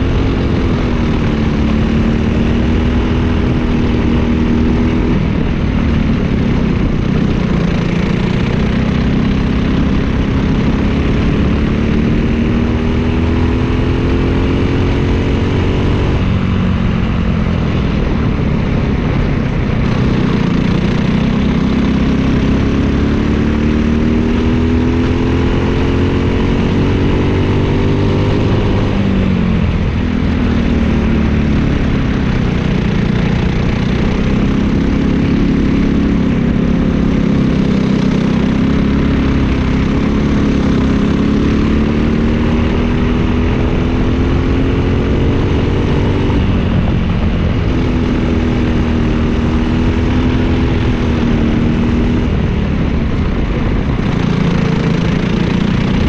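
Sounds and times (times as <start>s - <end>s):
kart engine revving: 19.8s - 56.0s.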